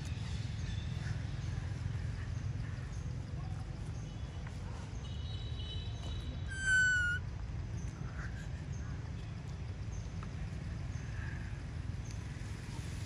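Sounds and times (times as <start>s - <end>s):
high animal call: 6.4s - 7.2s.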